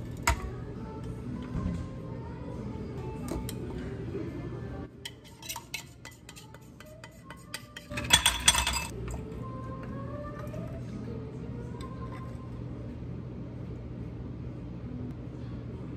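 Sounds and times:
dishes and cutlery clinking: 5.0 - 9.2.

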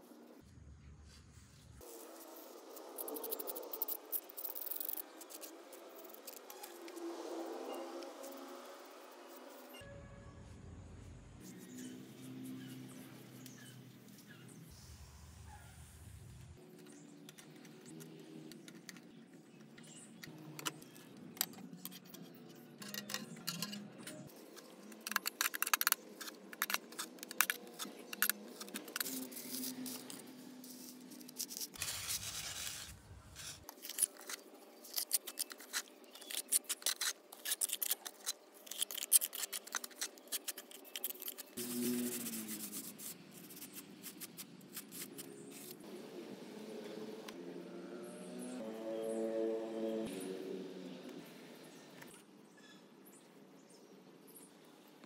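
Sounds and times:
small hard pieces clicking: 22.8 - 30.1, 33.7 - 41.6.

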